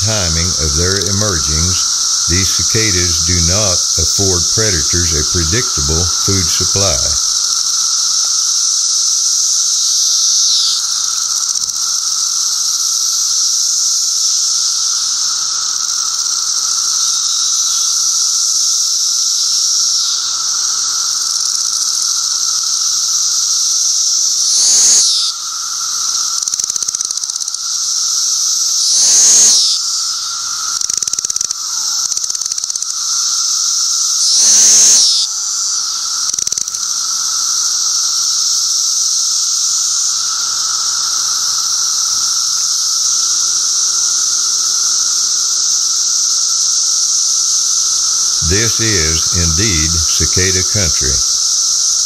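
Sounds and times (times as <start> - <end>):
cicadas droning: 7.0 - 48.4.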